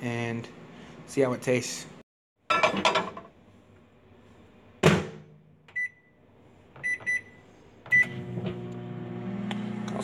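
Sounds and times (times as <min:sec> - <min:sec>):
microwave keypad beeps: 0:05.7 - 0:06.2, 0:06.8 - 0:08.2.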